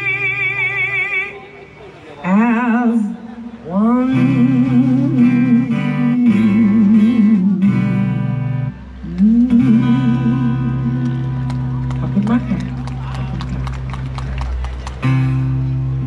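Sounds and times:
person singing with vibrato: 0.0 - 1.5, 2.2 - 11.5
acoustic guitar: 0.0 - 16.0.

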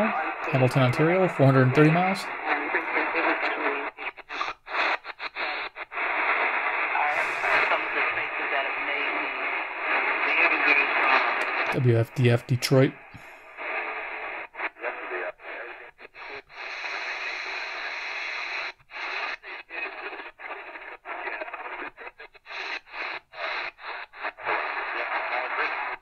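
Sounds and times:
radio static hiss: 0.0 - 26.0.

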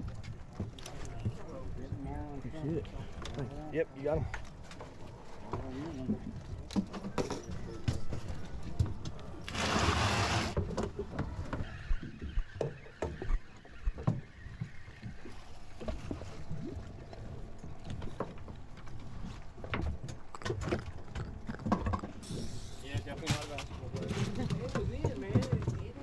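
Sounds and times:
fishing gear knocks and rattles: 4.2 - 9.4.

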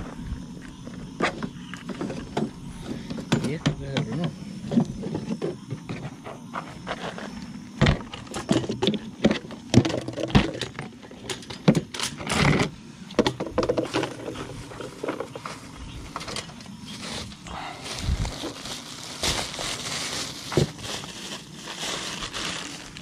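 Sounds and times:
plastic cooler being knocked about: 0.9 - 6.1, 7.8 - 11.9, 13.2 - 15.4, 20.4 - 21.0.

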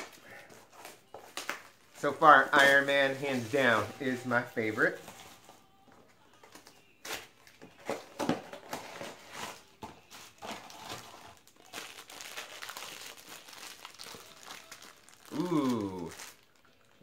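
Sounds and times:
foil pouch crinkling and tearing: 10.3 - 17.0.

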